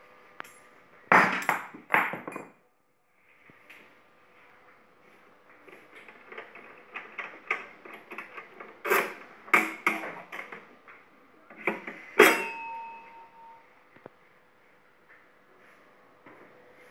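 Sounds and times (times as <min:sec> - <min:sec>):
ringing metallic clang: 0:12.2 - 0:13.6.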